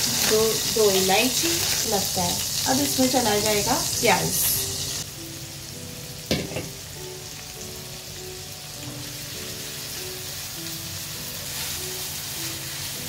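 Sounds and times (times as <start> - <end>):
onions sizzling in oil: 0.0 - 13.0
spatula stirring in pan: 11.4 - 13.0.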